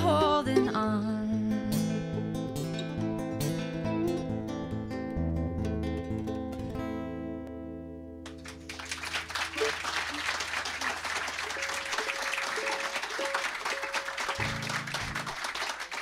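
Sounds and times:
audience applause: 8.3s - 16.0s
acoustic guitar chord ringing: 11.5s - 15.3s.

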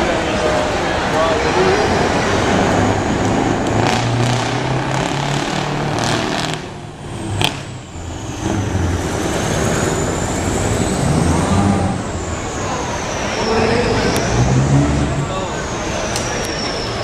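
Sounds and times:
truck engine driving past: 0.0s - 17.0s
sharp exhaust crack: 2.3s - 15.3s.

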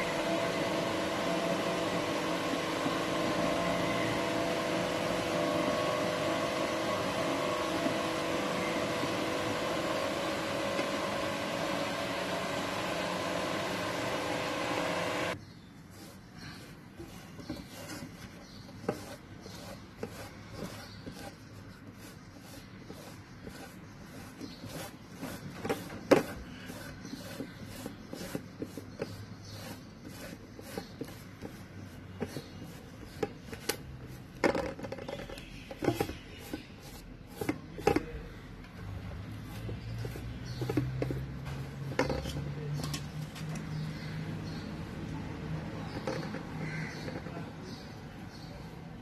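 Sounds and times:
fingers rubbing batter on leaf: 15.6s - 42.5s.

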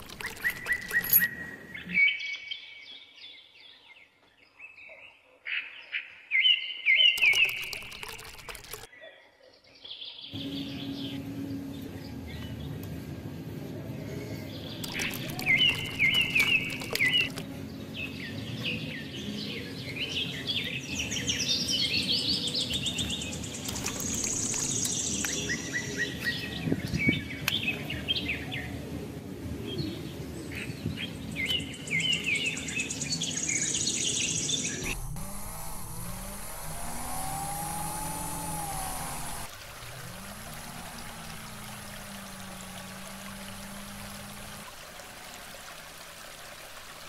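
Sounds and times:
water pouring from pipe: 0.0s - 1.2s, 7.2s - 8.9s, 14.8s - 17.4s, 23.6s - 25.5s, 34.8s - 47.0s
small birds chirping: 0.0s - 5.4s, 6.4s - 8.9s, 14.5s - 28.7s, 30.6s - 39.5s
low hum: 34.7s - 44.8s.

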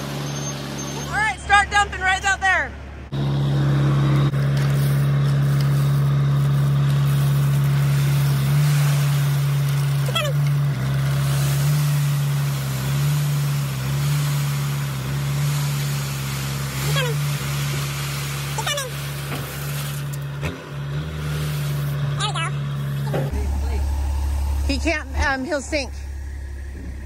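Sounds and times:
high falling squeaks: 0.0s - 1.5s
diesel truck engine idling: 0.0s - 27.0s
dirt and gravel sliding: 4.1s - 23.9s.

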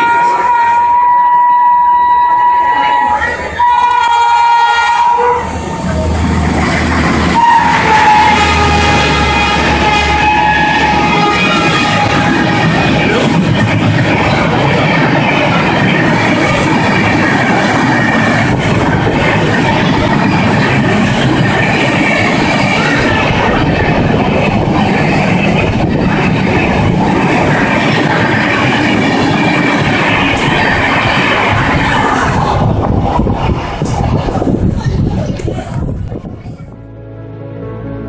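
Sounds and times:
train wheels rumbling on rail: 0.0s - 36.8s.

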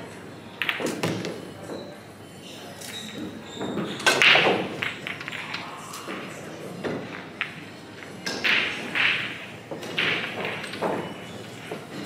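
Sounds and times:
pool balls knocking together: 3.7s - 5.6s, 6.8s - 12.0s.

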